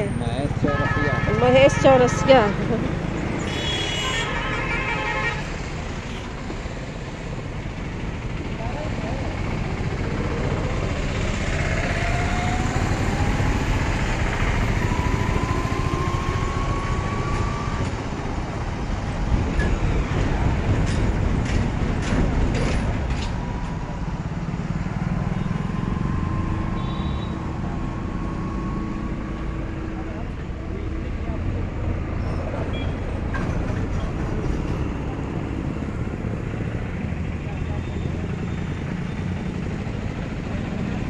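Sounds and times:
traffic rumble: 0.0s - 41.0s
engine whine: 5.2s - 32.1s.

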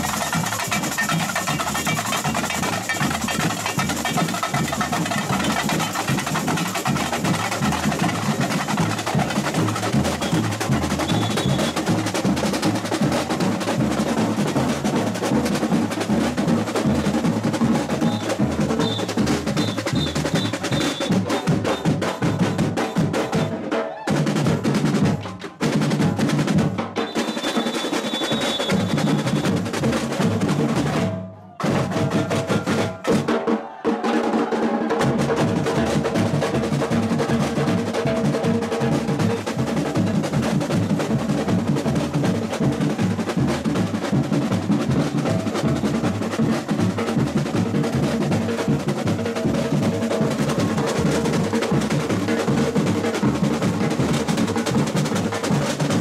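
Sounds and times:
hand percussion: 0.0s - 33.3s, 35.0s - 56.0s
snare drums: 0.0s - 56.0s.

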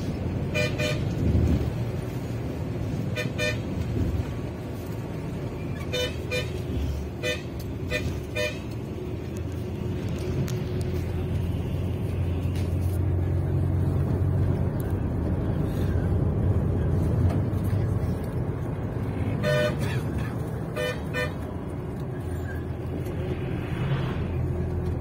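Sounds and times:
bus rumbling on the road: 0.0s - 25.0s
vehicle horn tooting: 0.5s - 1.1s, 3.1s - 3.7s, 5.8s - 6.6s, 7.2s - 8.7s, 19.4s - 20.1s, 20.7s - 21.5s.

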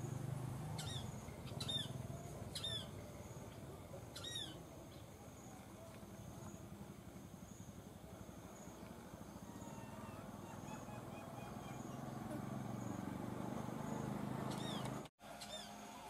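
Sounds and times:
vehicle engine hum: 0.0s - 15.1s
bird chirps: 0.8s - 5.1s, 8.6s - 15.8s.

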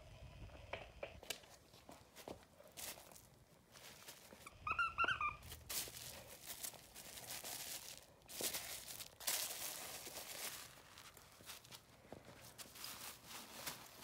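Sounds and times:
squeaky toy squeaking: 4.4s - 5.7s
bedsheets rustling: 5.4s - 14.0s.

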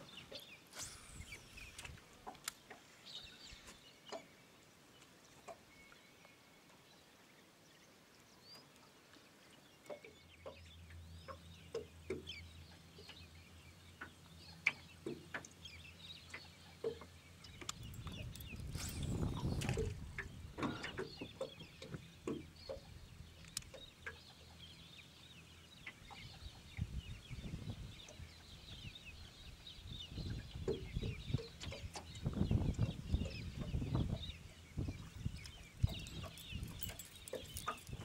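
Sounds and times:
small clicks: 23.4s - 23.8s.

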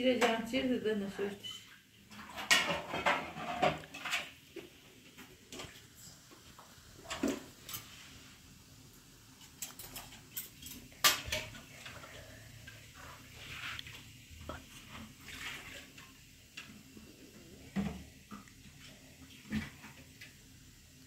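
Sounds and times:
dishes and utensils clinking: 1.3s - 4.4s, 9.4s - 12.2s.

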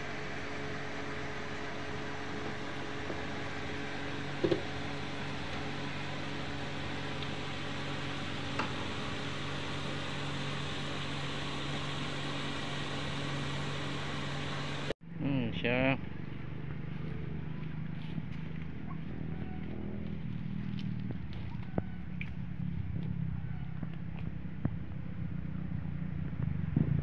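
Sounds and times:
electric fan humming: 0.0s - 15.0s.

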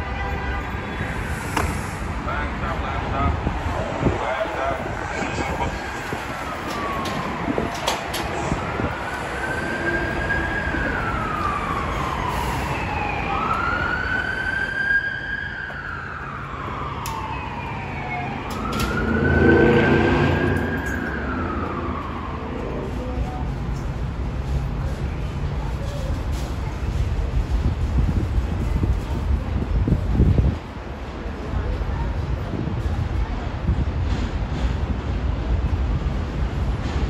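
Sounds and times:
siren wailing: 4.0s - 23.2s.

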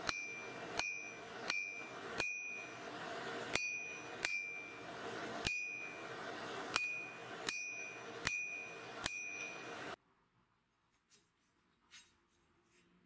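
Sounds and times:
hammer striking metal on anvil: 0.0s - 10.0s
steady rushing noise: 0.0s - 10.0s.

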